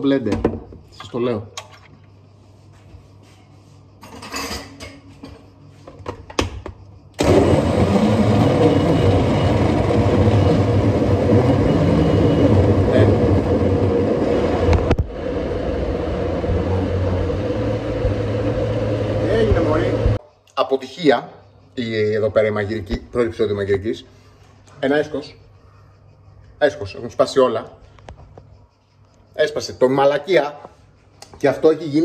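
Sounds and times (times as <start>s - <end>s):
electric blender running: 7.2s - 20.2s.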